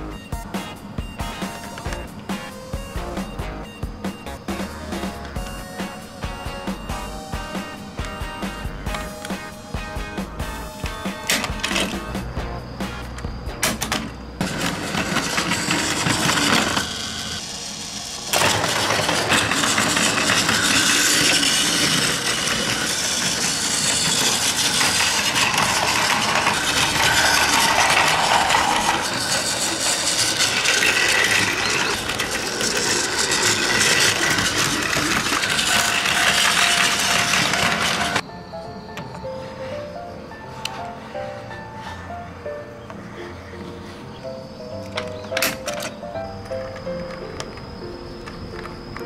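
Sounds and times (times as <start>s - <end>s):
toy trains rattling on track: 13.7s - 38.2s.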